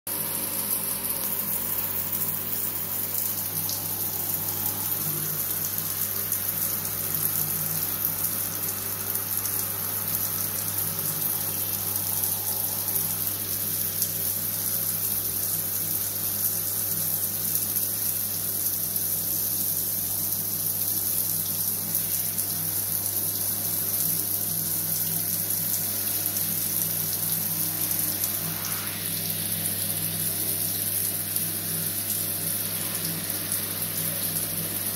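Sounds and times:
shower spray hissing and pattering: 0.2 - 18.4, 20.3 - 34.9
steady low hum: 1.1 - 14.7, 24.7 - 30.7.

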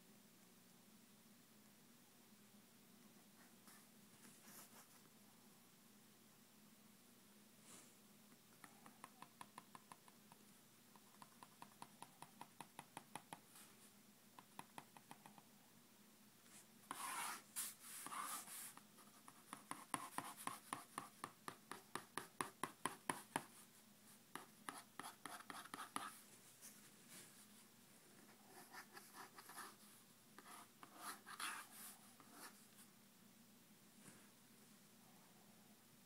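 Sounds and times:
drawing tool scratching on paper: 16.9 - 23.5, 24.3 - 26.2, 30.4 - 32.6.

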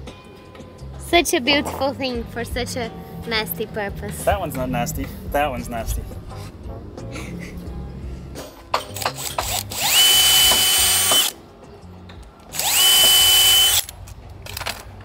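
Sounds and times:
cordless drill whine: 9.0 - 11.4, 12.5 - 13.9.

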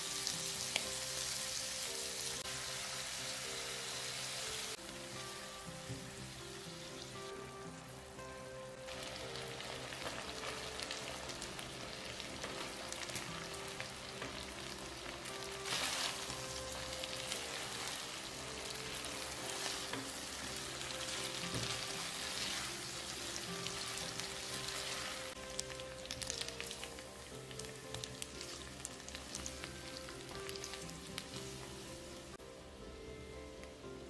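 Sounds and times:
sauce sizzling in a frying pan: 0.0 - 32.4.

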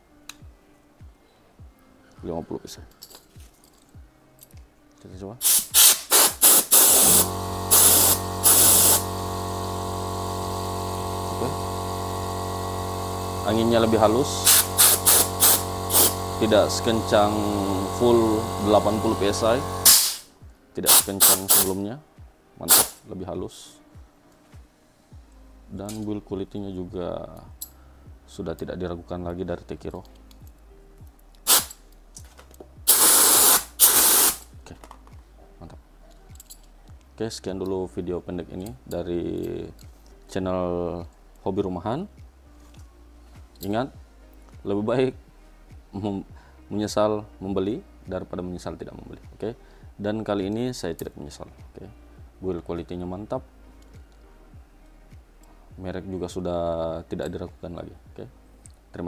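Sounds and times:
air compressor motor hum: 5.4 - 20.3, 20.9 - 21.8, 22.7 - 22.9, 31.5 - 31.7, 32.9 - 34.4
air duster blasts: 5.4 - 20.3, 20.9 - 21.8, 22.7 - 23.0, 31.5 - 31.8, 32.9 - 34.5.

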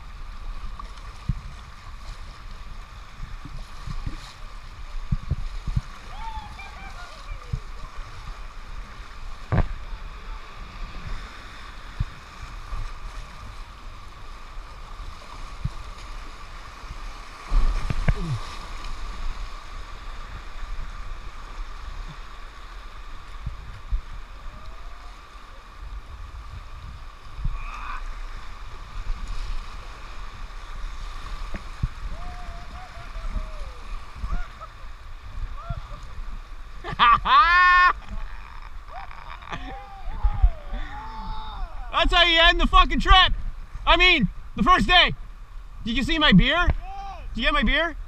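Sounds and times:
river rapids rushing: 5.9 - 12.4
knocks and splashes: 9.4 - 9.8, 17.4 - 18.9.

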